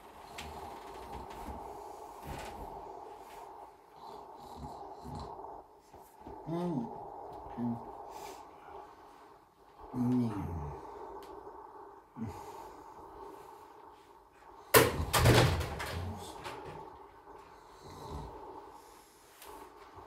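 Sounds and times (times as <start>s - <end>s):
rustling and shuffling: 0.0s - 11.8s
steady low hum: 0.0s - 20.0s.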